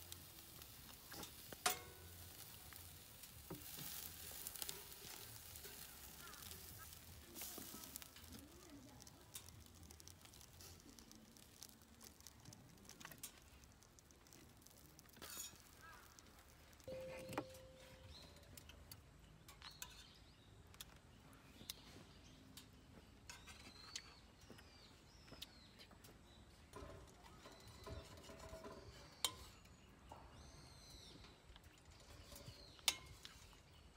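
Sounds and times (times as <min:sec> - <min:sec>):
tongs and knife tapping metal plate: 0:01.1 - 0:08.1.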